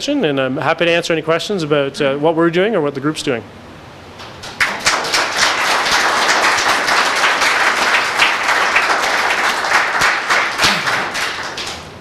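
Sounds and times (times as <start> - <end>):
audience applauding: 4.4 - 12.0.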